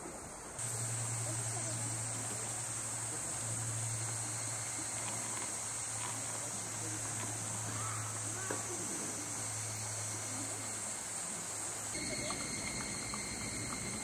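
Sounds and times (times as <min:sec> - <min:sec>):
insects chirring: 0:00.1 - 0:14.0
low hum: 0:12.0 - 0:14.0.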